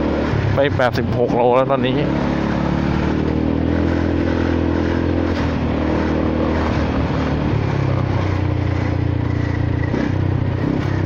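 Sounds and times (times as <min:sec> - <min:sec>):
scooter engine and exhaust: 0:00.0 - 0:11.0.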